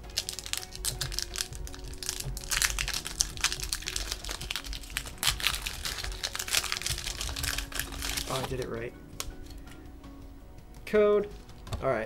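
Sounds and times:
foil wrapper crinkling: 0:00.0 - 0:09.5.

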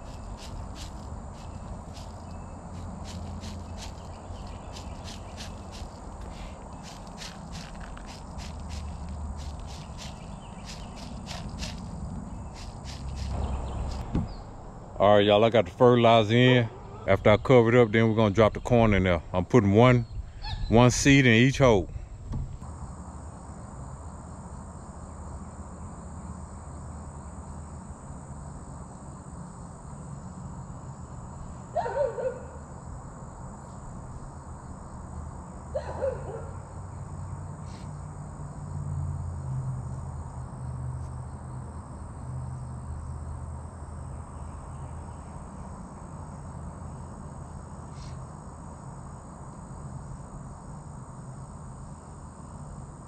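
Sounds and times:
low steady hum: 0:00.0 - 0:31.7
crickets and insects chirping: 0:00.0 - 0:53.0.

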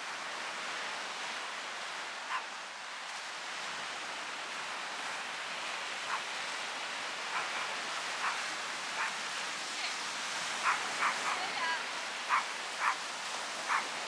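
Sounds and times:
waves washing on beach: 0:00.0 - 0:14.0.

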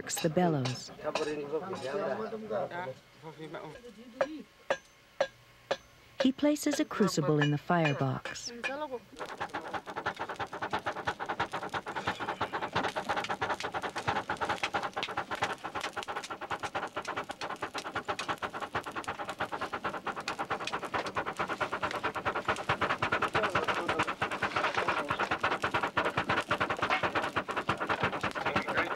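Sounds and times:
bellows puffing air: 0:09.2 - 0:28.9.

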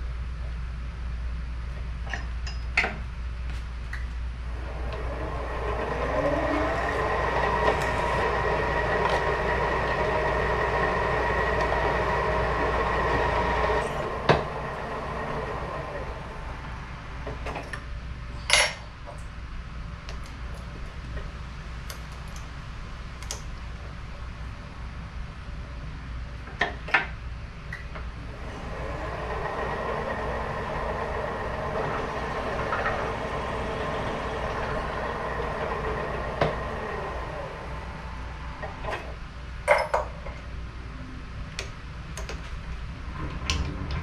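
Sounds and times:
drill press whining and cutting metal: 0:04.5 - 0:17.7, 0:28.2 - 0:39.2.

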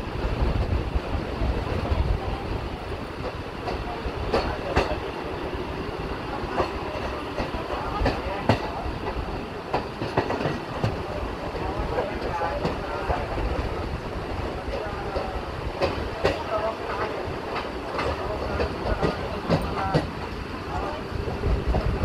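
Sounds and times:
train rumbling on rails: 0:00.0 - 0:22.0
wheels clacking over rail joints: 0:03.0 - 0:13.6, 0:14.6 - 0:21.0.

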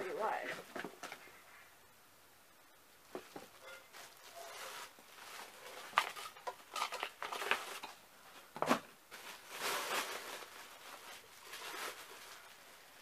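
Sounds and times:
packaging crinkling: 0:03.9 - 0:08.0, 0:08.7 - 0:12.8
packaging rustling and clicking: 0:04.0 - 0:08.0.

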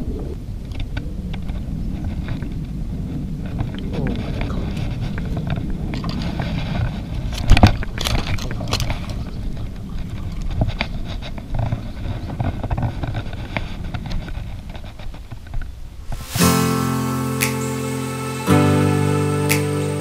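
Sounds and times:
fish knocking and scraping: 0:00.7 - 0:16.4.

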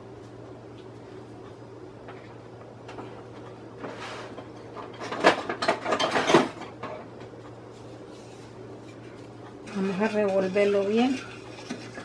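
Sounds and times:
kitchen utensils clattering: 0:04.3 - 0:07.1, 0:09.6 - 0:12.0.

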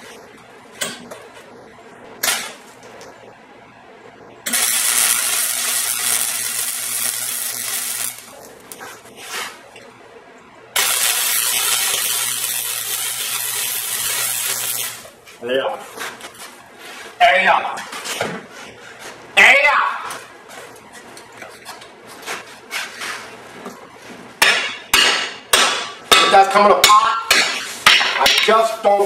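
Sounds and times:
low welder hum: 0:00.0 - 0:17.2
welder sizzling hiss: 0:04.5 - 0:08.4, 0:10.8 - 0:15.2.

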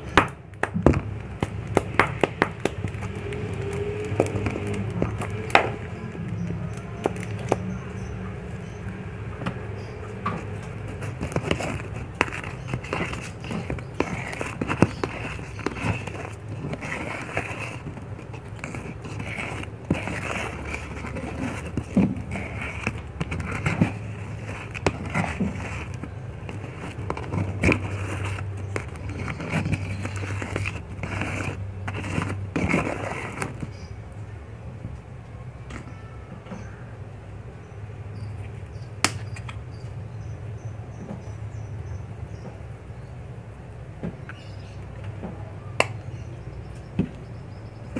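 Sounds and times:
spatula scraping paste in cup: 0:09.8 - 0:33.9.

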